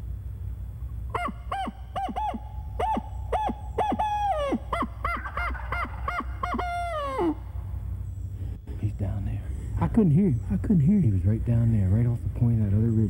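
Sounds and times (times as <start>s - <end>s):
owl call hoots: 1.1s - 8.8s.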